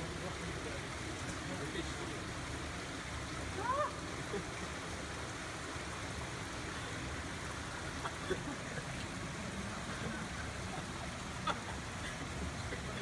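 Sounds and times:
flowing water: 0:00.0 - 0:13.0.

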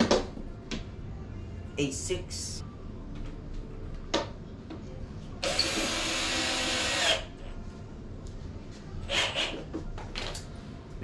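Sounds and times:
power drill driving screw: 0:05.4 - 0:07.3.

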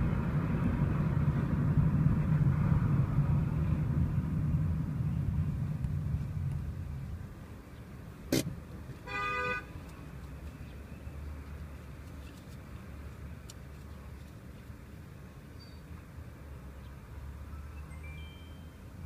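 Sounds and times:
street traffic rumble: 0:00.0 - 0:19.0
short car horn toot: 0:09.1 - 0:09.7.

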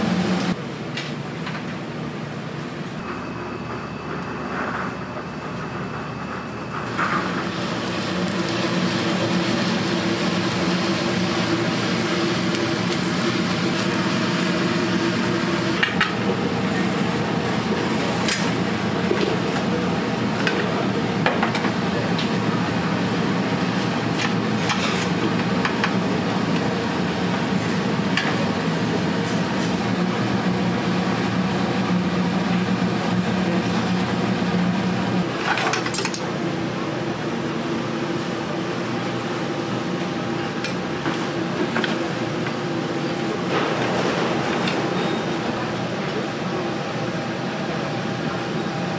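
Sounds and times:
steady hum: 0:00.0 - 0:35.5
food sizzling: 0:06.9 - 0:15.8.

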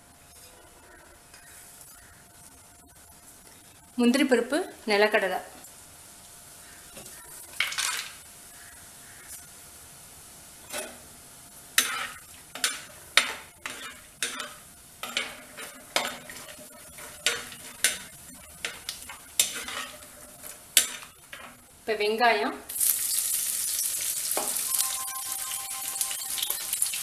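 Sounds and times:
nuts sizzling in hot oil: 0:10.6 - 0:27.0
metal spoon stirring in pot: 0:11.8 - 0:21.7.

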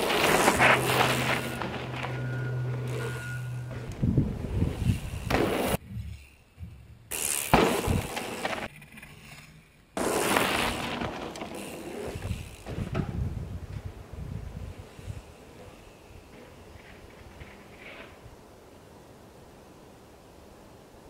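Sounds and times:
bike tyres rolling over gravel: 0:00.0 - 0:06.2, 0:07.1 - 0:08.9, 0:10.0 - 0:18.6.

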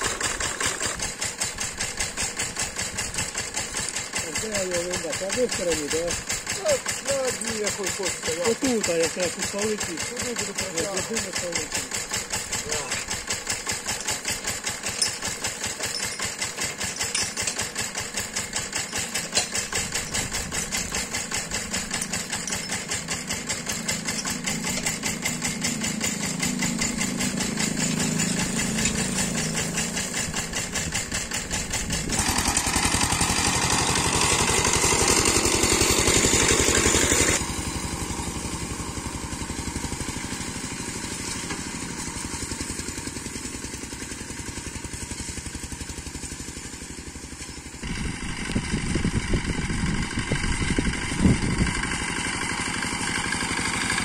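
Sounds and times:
walk-behind tractor engine running: 0:00.0 - 0:54.0.

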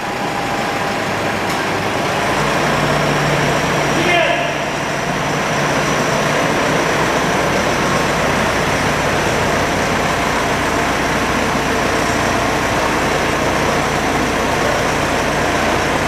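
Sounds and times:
truck engine running: 0:00.0 - 0:16.0.

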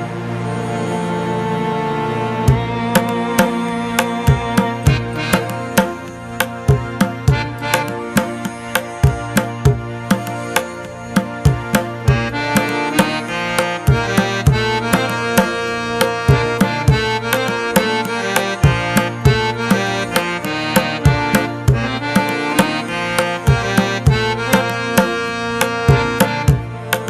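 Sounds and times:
held melody with overtones: 0:00.0 - 0:27.0.

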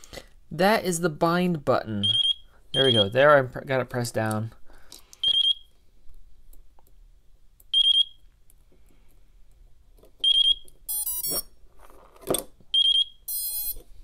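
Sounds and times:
stacked electronic beeps: 0:02.0 - 0:03.4, 0:05.2 - 0:05.7, 0:07.7 - 0:08.3, 0:10.2 - 0:11.5, 0:12.7 - 0:13.8.

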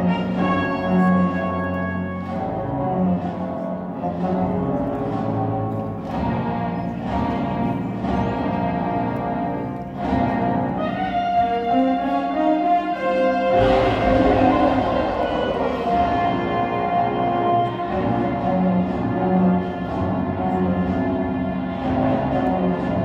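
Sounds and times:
orchestral film score: 0:00.0 - 0:23.0.

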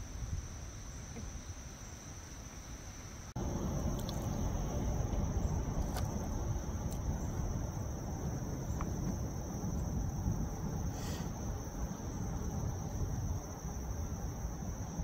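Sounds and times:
insects droning: 0:00.0 - 0:15.0
low rushing background noise: 0:00.0 - 0:15.0.

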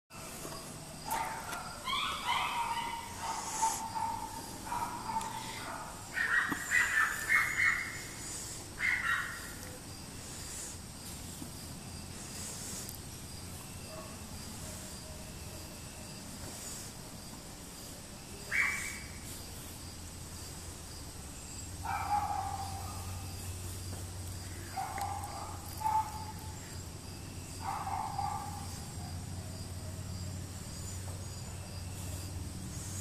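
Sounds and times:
outdoor background noise: 0:00.1 - 0:33.0
rough animal calls: 0:00.2 - 0:15.8, 0:18.4 - 0:19.4.

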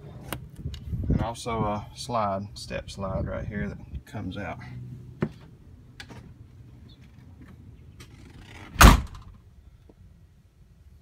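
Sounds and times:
loud short thump: 0:08.8 - 0:09.3.

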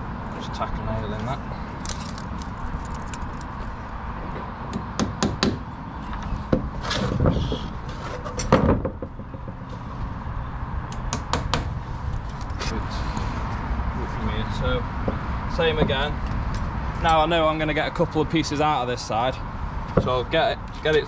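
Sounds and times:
hammer striking nail into wood: 0:04.8 - 0:05.6, 0:11.0 - 0:11.7.

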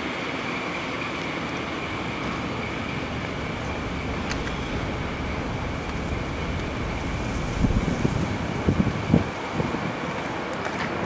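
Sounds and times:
diesel locomotive rumble: 0:00.0 - 0:10.6
outdoor noise: 0:00.0 - 0:11.0
high-pitched drone: 0:01.7 - 0:09.8.

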